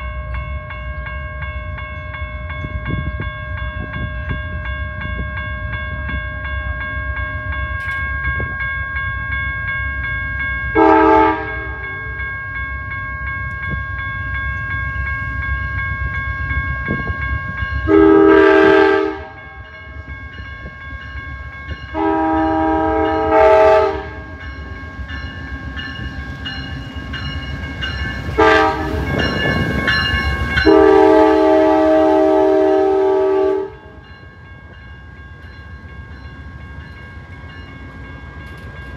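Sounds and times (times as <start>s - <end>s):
train air horn blasts: 10.8s - 12.0s, 17.9s - 19.6s, 21.9s - 24.3s, 28.4s - 29.1s, 30.6s - 33.9s.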